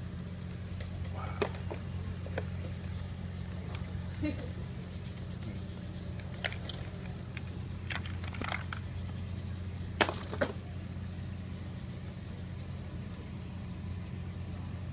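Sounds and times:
pencils on drawing paper: 0.0s - 9.6s.

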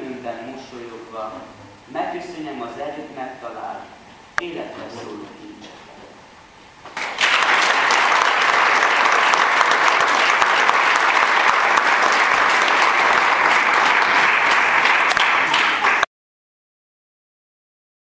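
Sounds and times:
audience applauding: 6.9s - 16.1s.

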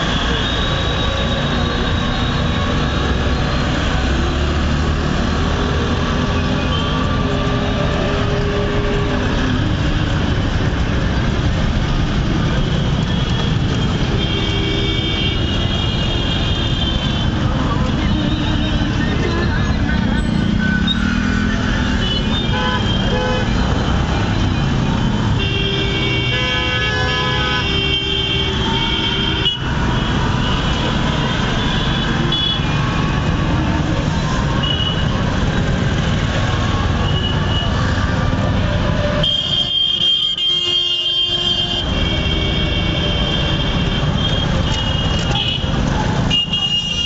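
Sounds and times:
engine and road noise: 0.0s - 47.0s
vehicle horns honking: 12.6s - 33.2s, 38.8s - 47.0s.

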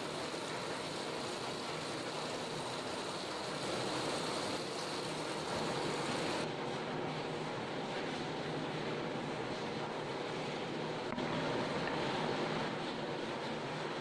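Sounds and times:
tap water running into sink: 0.0s - 6.4s.

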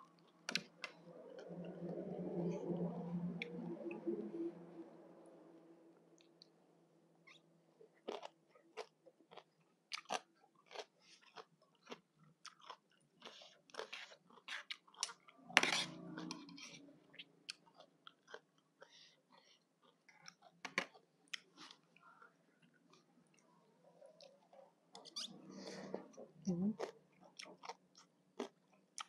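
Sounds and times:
close-up chewing crunches: 8.1s - 15.2s.

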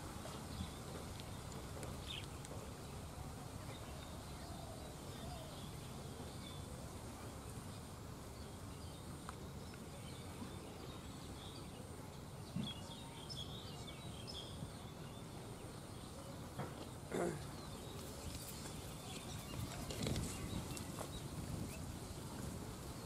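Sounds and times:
birds chirping: 0.0s - 23.0s.

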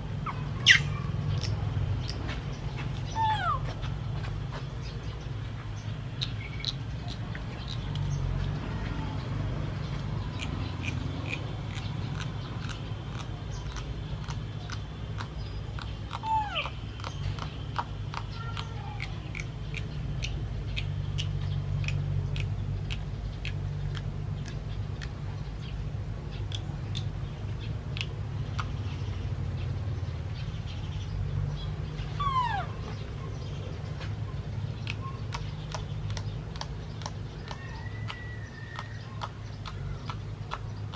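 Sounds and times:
steady low hum: 0.0s - 40.9s
baby monkey squeaky calls: 0.2s - 1.6s, 3.0s - 3.7s, 15.8s - 19.8s, 32.1s - 32.9s.

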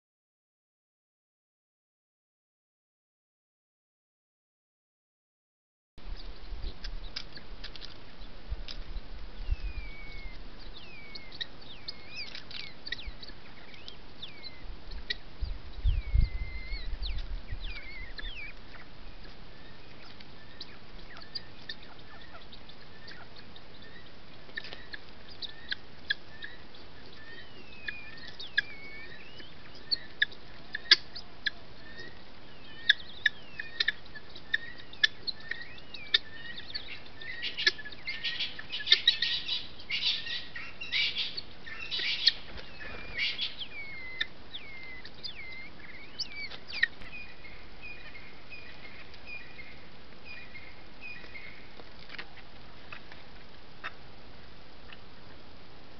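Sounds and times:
guineafowl calling: 6.0s - 54.1s, 54.8s - 55.3s.

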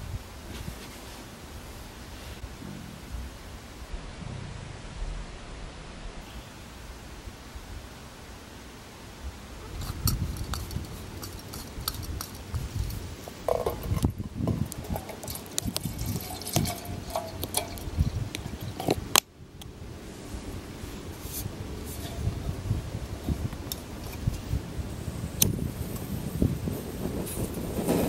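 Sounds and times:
water pouring into metal mug: 14.8s - 18.0s.

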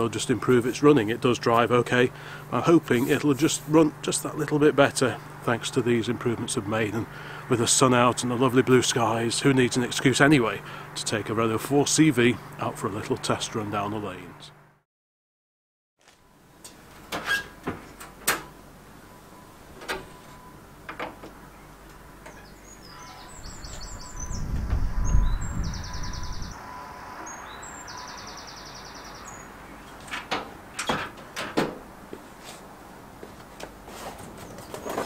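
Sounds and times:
birdsong trills: 18.8s - 30.7s
engine lid clicks and knocks: 20.8s - 21.4s, 29.9s - 31.9s
low rumble: 23.4s - 26.6s.

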